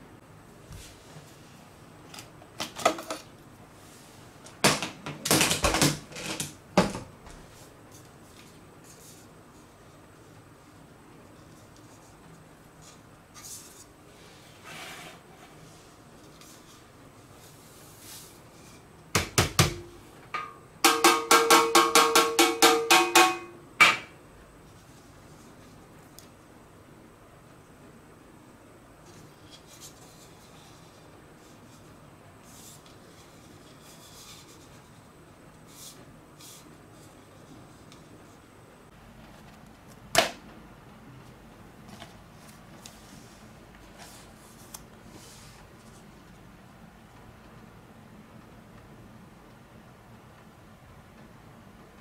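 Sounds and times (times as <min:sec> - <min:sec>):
soft rustles of handling: 0:07.3 - 0:19.0, 0:41.2 - 0:47.6.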